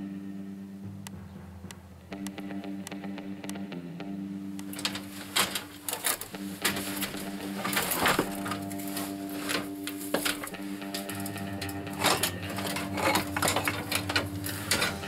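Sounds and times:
steady low tone: 0:00.0 - 0:15.0
scrap metal clattering: 0:04.7 - 0:15.0.

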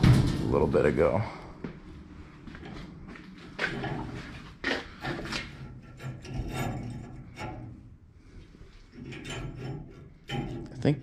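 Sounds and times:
metal latch scraping and rubbing: 0:03.6 - 0:08.0, 0:08.8 - 0:11.0.

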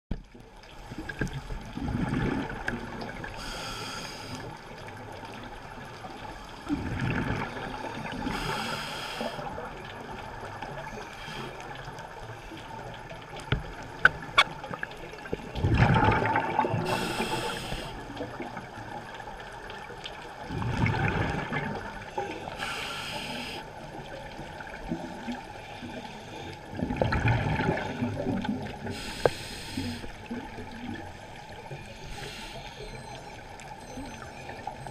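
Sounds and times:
exhaled bubbles rumbling: 0:00.2 - 0:03.4, 0:04.7 - 0:08.4, 0:12.6 - 0:22.6, 0:26.6 - 0:29.0
regulator hissing inhale: 0:03.4 - 0:04.6, 0:08.2 - 0:09.5, 0:16.8 - 0:18.0, 0:22.5 - 0:23.7, 0:28.8 - 0:30.2, 0:31.9 - 0:32.9.

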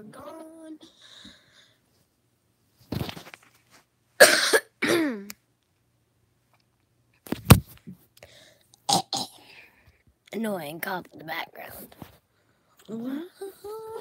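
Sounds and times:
girl's cough-like vocal burst: 0:04.2 - 0:05.3.

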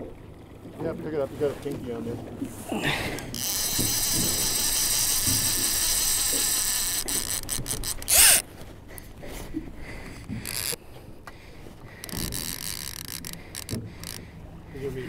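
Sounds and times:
fishing reel buzzing: 0:03.1 - 0:08.5, 0:10.3 - 0:10.8, 0:12.0 - 0:14.3.

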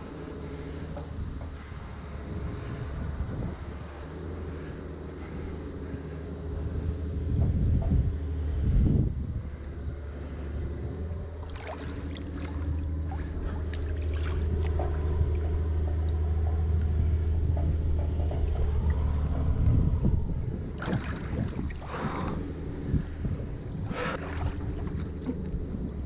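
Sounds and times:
steady low hum: 0:00.0 - 0:26.0
water sloshing and lapping: 0:11.2 - 0:17.0, 0:20.7 - 0:26.0
splashing and scraping: 0:11.4 - 0:15.7, 0:20.8 - 0:22.4, 0:24.0 - 0:25.7.

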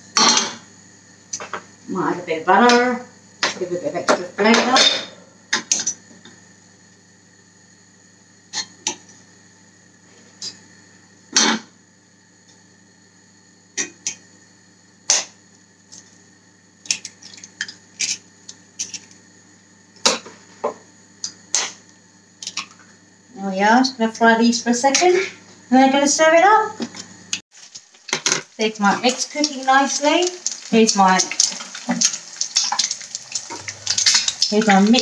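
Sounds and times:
faint steady hum: 0:00.0 - 0:35.0
egg cracking: 0:29.3 - 0:35.0.

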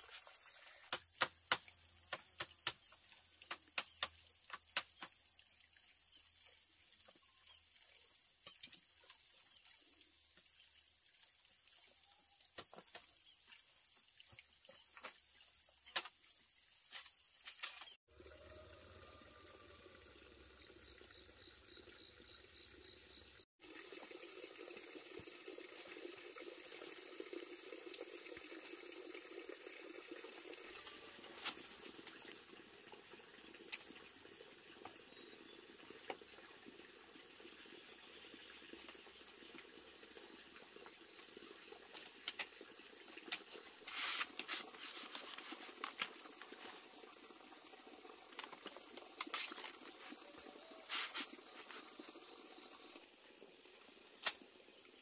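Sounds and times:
insects chirping: 0:00.0 - 0:55.0
watery hiss: 0:35.4 - 0:53.1.

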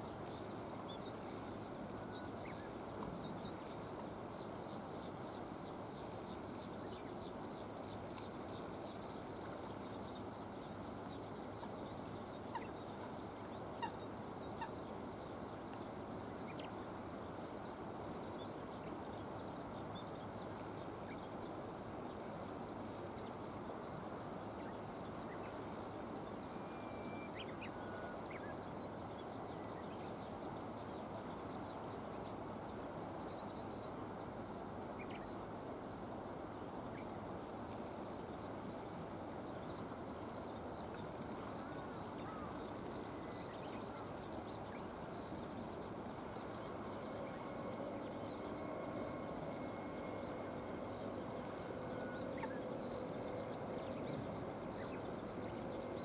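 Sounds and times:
faint bird chirps: 0:00.0 - 0:56.0
low droning hum: 0:45.2 - 0:56.0.

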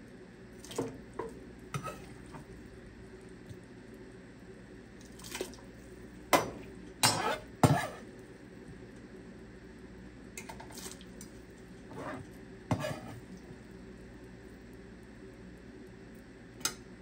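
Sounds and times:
utensils clinking on cookware: 0:06.4 - 0:08.0.

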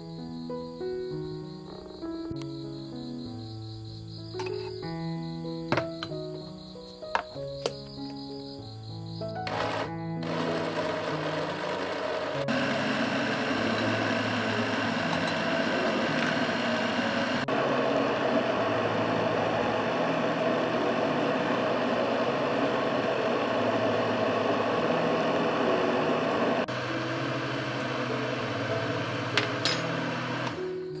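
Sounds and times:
electric blender running: 0:09.4 - 0:31.0.

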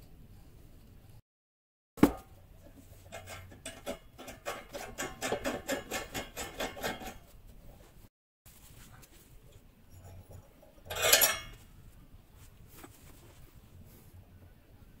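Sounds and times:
wires scraping metal tube: 0:02.8 - 0:07.4, 0:09.4 - 0:11.6.

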